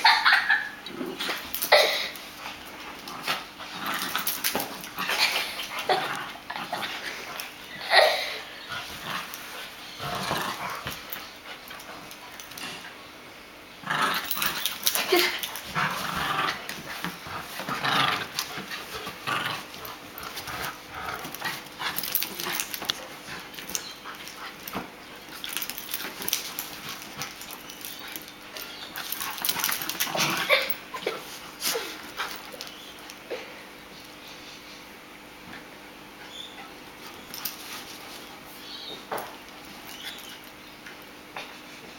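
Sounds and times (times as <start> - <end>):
dogs growling: 0.8 - 13.0, 13.8 - 33.4.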